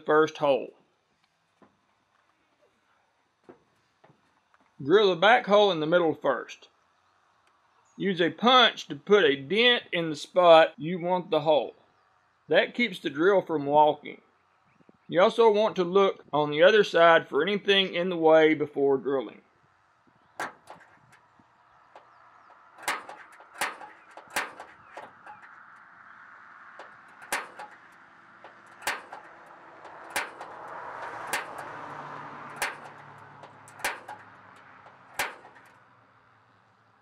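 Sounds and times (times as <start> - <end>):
center punch metallic clicks: 20.3 - 25.9, 26.7 - 35.8.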